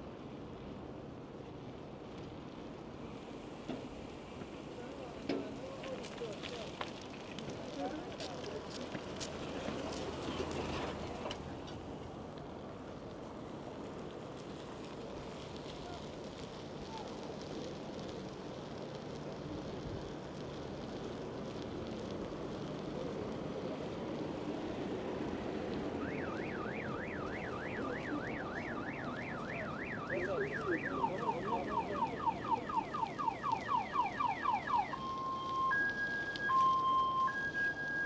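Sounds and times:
street noise: 0:00.0 - 0:38.0
wind: 0:00.0 - 0:38.0
car alarm: 0:26.0 - 0:38.0.

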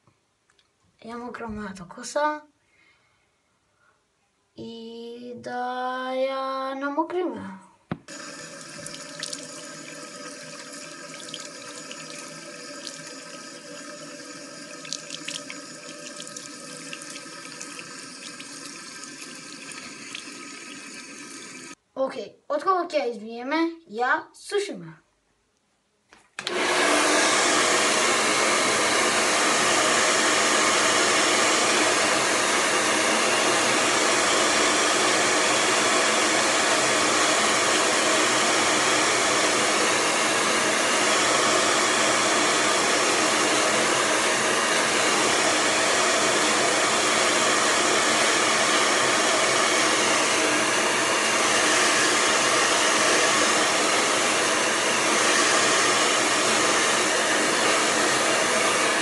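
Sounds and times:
hair dryer blowing: 0:08.0 - 0:21.8, 0:26.4 - 0:59.0.

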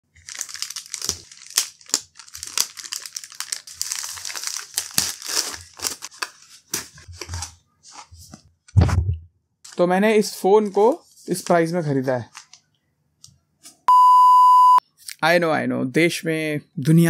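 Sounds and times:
plastic mailer crinkling and tearing: 0:00.1 - 0:07.5.

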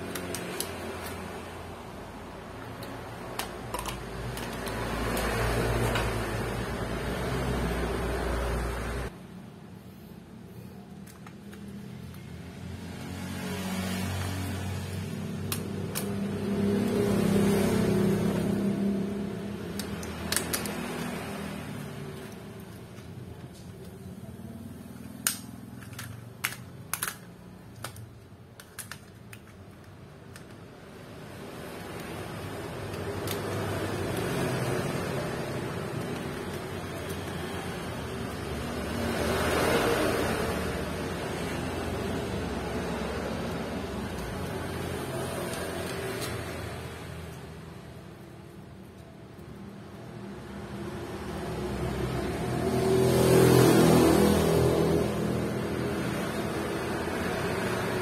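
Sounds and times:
plastic clips snapping: 0:00.0 - 0:01.5, 0:02.6 - 0:06.1, 0:15.4 - 0:16.4, 0:19.7 - 0:21.2, 0:25.0 - 0:30.7, 0:31.8 - 0:34.3.

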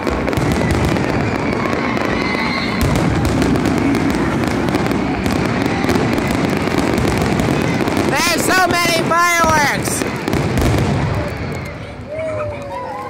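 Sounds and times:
fireworks bangs and crackling: 0:00.0 - 0:13.0.

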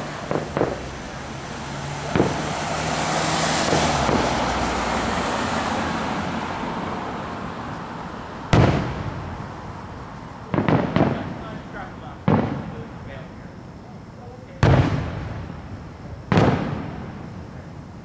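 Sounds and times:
fireworks bangs: 0:00.0 - 0:06.3, 0:07.6 - 0:18.0.

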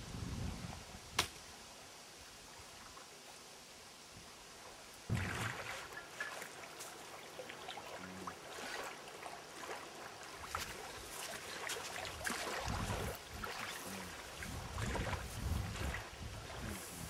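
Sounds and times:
wind buffeting microphone: 0:00.0 - 0:01.2, 0:12.2 - 0:17.0
small waves lapping: 0:04.4 - 0:17.0.

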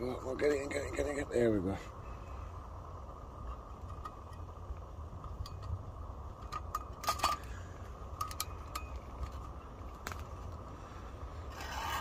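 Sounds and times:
metallic clinks of lantern handle: 0:08.2 - 0:09.6.

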